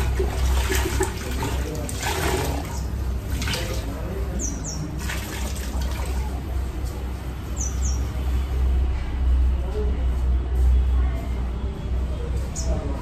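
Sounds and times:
water splashing into bucket: 0.0s - 4.2s, 4.9s - 6.5s.

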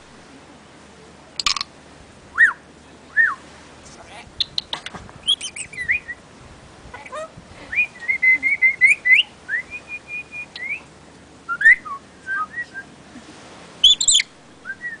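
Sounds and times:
parrot whistling: 5.2s - 6.2s, 7.8s - 10.8s, 13.8s - 15.0s.

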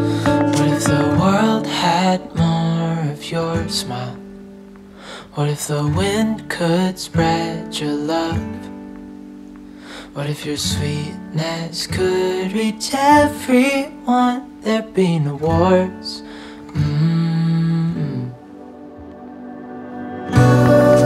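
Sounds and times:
person singing: 0.0s - 4.2s, 10.1s - 21.0s
acoustic guitar: 0.0s - 21.0s.

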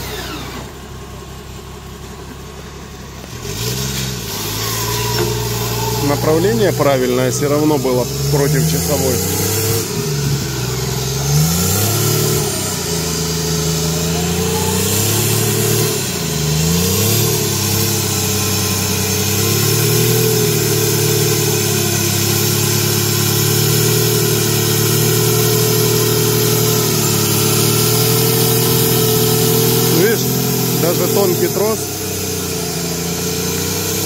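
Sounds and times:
off-road vehicle engine revving: 0.0s - 34.0s.

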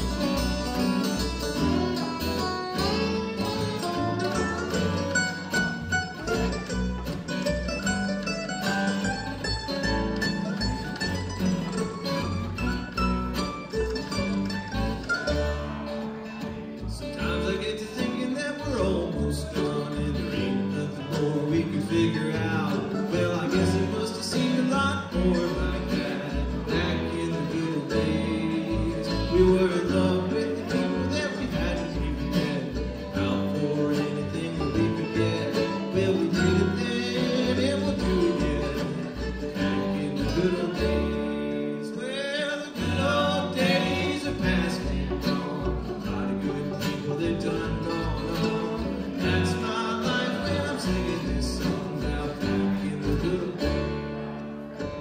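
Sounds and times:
bluegrass string band playing: 0.0s - 55.0s
upright bass plucking low notes: 0.0s - 55.0s.

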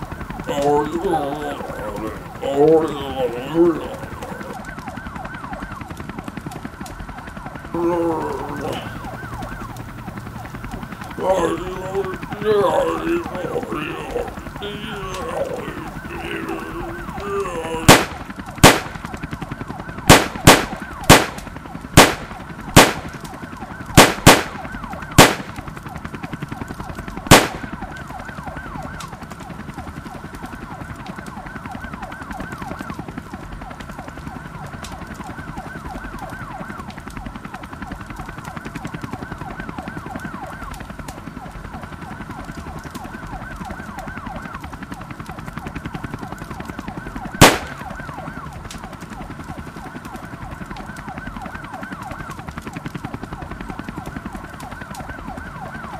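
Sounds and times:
emergency sirens wailing: 0.0s - 55.9s
loud gunshots: 17.8s - 19.0s, 20.1s - 21.4s, 22.0s - 23.1s, 24.0s - 24.6s, 25.2s - 25.5s, 27.3s - 27.7s, 47.4s - 47.9s.

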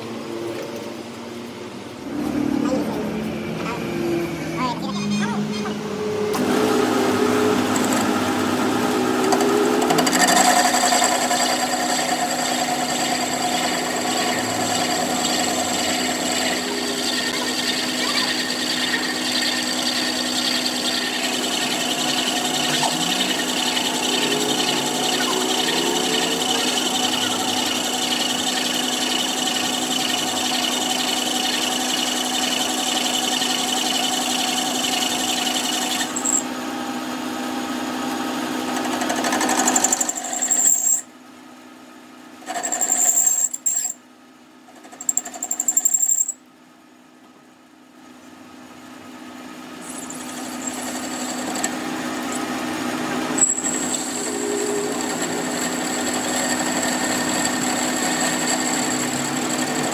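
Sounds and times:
metal lathe cutting steel: 6.1s - 36.6s, 37.7s - 41.1s, 42.4s - 44.0s, 49.8s - 59.9s.

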